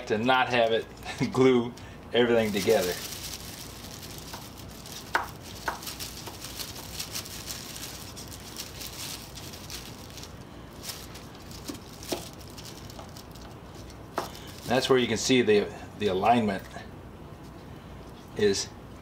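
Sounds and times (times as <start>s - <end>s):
plastic bag crinkling: 2.2s - 14.9s.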